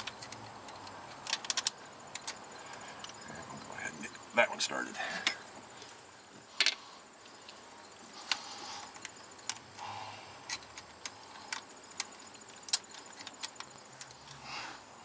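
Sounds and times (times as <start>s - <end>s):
hand tools clicking and clinking: 0.0s - 3.2s, 6.6s - 6.8s, 8.2s - 14.4s.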